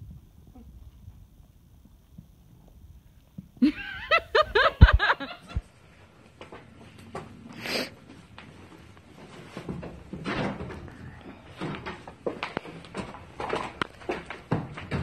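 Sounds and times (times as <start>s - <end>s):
person laughing: 3.6s - 5.6s.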